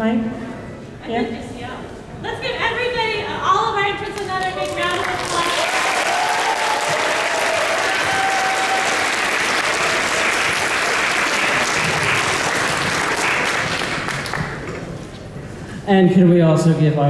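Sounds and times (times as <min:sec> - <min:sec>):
audience applauding: 0:04.3 - 0:14.9.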